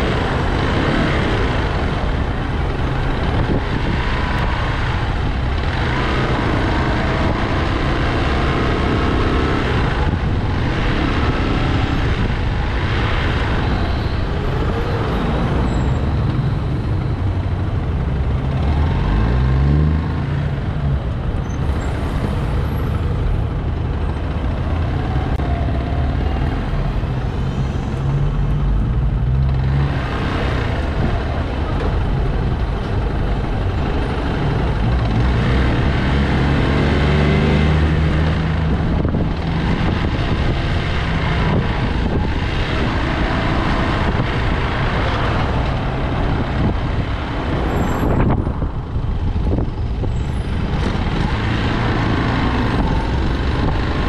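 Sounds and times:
engine revving: 0.0s - 15.6s, 29.2s - 48.4s, 50.5s - 54.0s
road and wind noise: 0.0s - 54.0s
vehicle engines in traffic: 0.0s - 54.0s.

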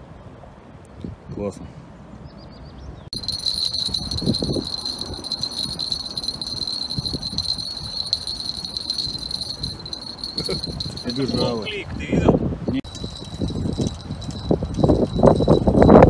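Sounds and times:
wind rumbling on microphone: 2.8s - 16.0s
high-pitched ringing tone: 3.2s - 11.7s, 12.9s - 16.0s.

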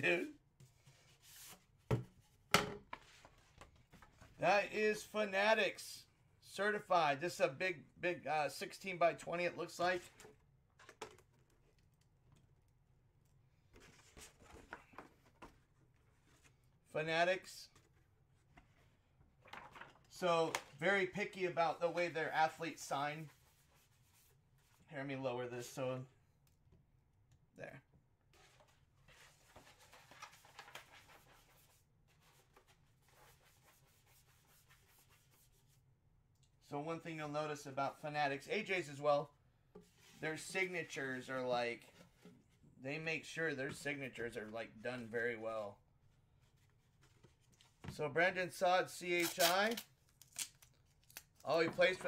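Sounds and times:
paper rustling: 19.4s - 20.8s, 28.4s - 33.8s.

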